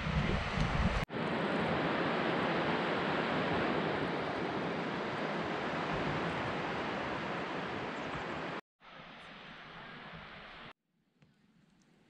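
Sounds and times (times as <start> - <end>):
ocean surf washing in: 0.0 - 10.7.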